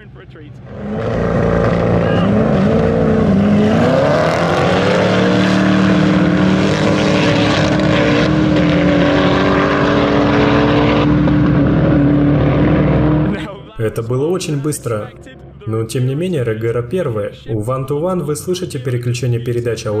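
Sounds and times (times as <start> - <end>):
car engines accelerating at full throttle: 0.0 - 13.6.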